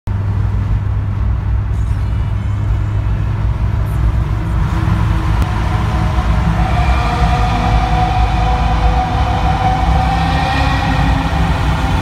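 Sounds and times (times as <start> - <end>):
car engine and road noise drone: 0.1 - 12.0.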